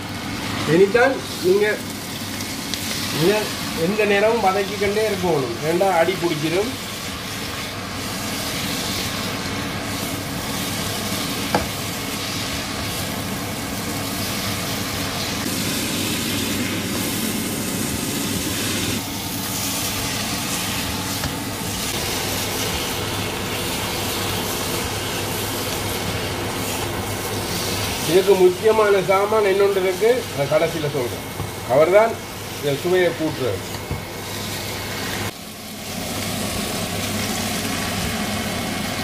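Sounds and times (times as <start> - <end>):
meat sizzling in a pot: 0.0 - 39.0
spatula stirring: 19.4 - 31.7.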